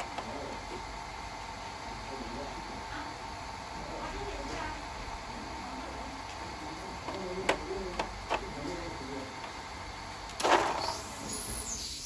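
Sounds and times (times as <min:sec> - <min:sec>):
faint voices: 0:01.7 - 0:10.0.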